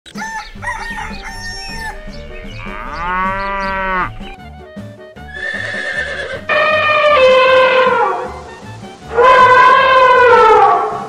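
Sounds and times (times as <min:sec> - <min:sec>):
music with steady low beat: 0:00.1 - 0:05.4
fowl calls: 0:00.2 - 0:04.4, 0:05.3 - 0:08.5, 0:09.1 - 0:11.0
cow mooing: 0:00.8 - 0:04.4, 0:05.3 - 0:08.4, 0:09.1 - 0:11.0.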